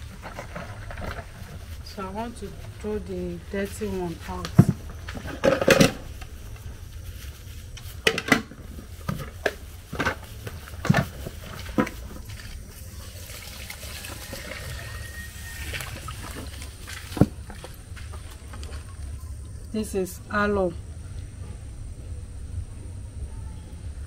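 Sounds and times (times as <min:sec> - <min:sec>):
water pouring and splashing: 0:08.9 - 0:18.9.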